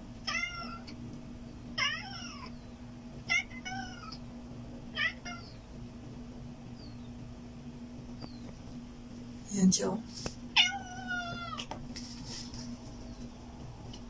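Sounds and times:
cat meowing: 0.2s - 1.0s, 1.8s - 2.6s, 3.3s - 4.2s, 4.9s - 5.6s, 10.6s - 11.7s.

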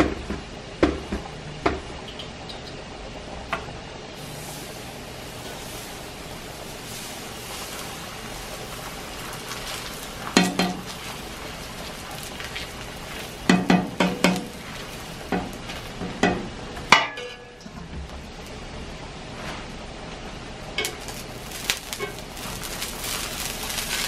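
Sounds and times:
pancake batter sizzling: 4.2s - 16.6s, 20.8s - 24.0s.

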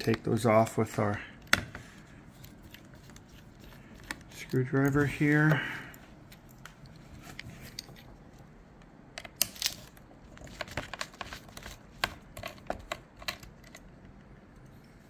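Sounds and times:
screwdriver clicking and scraping on metal: 2.4s - 5.5s, 9.2s - 13.9s.

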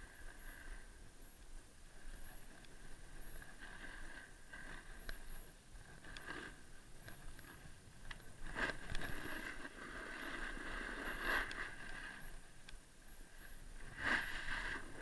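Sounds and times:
skis scraping over snow: 8.4s - 12.4s, 13.4s - 15.0s.

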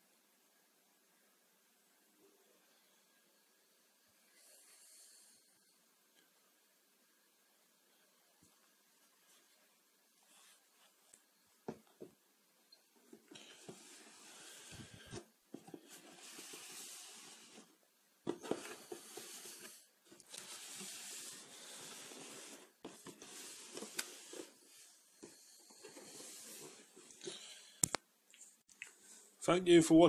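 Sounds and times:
shoes and cardboard box rustling: 13.0s - 24.8s.

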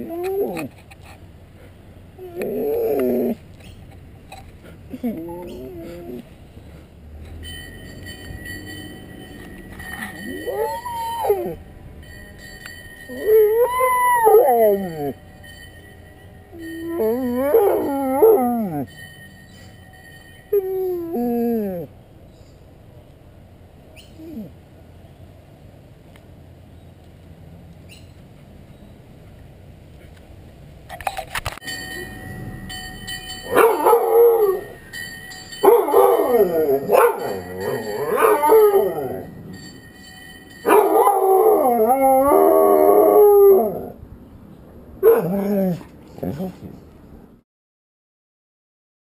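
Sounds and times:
dog howling: 10.2s - 11.6s, 13.1s - 15.2s, 16.8s - 18.8s, 35.7s - 39.3s, 40.7s - 44.0s.

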